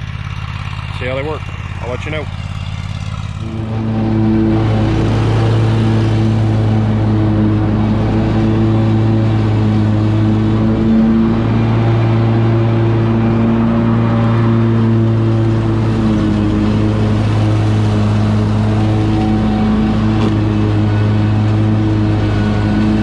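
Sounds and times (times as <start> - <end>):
mower engine running: 0.0 - 23.0.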